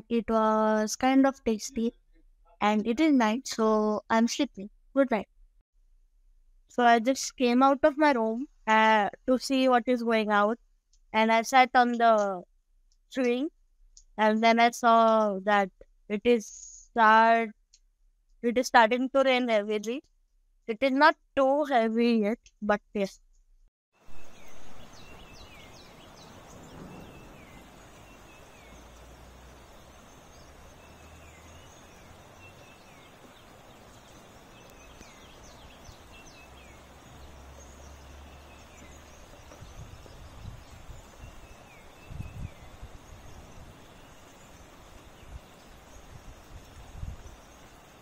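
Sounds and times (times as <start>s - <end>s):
light rain hissing: 24.0s - 48.0s
birds chirping: 24.1s - 48.0s
low rumbles: 24.3s - 41.4s.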